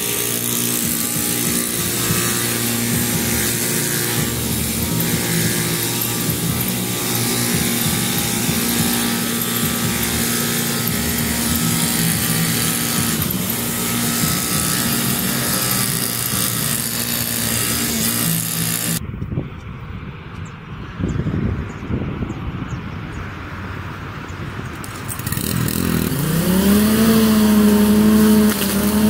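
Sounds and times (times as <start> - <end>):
small gas engine running: 0.0 - 19.0, 24.8 - 29.0.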